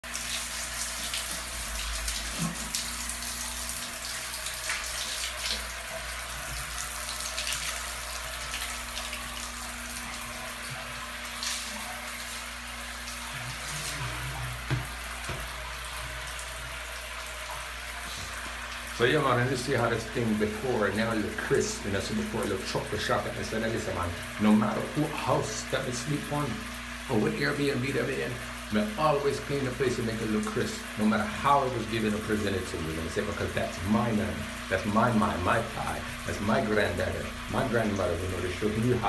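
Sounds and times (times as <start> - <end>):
water splashing on tiled floor: 0.0 - 16.7
water running into a sink: 0.0 - 39.0.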